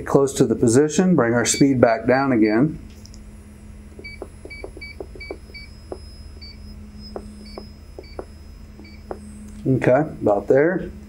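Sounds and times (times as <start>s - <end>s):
steady low hum: 0.0s - 11.0s
short high beeps: 4.0s - 9.5s.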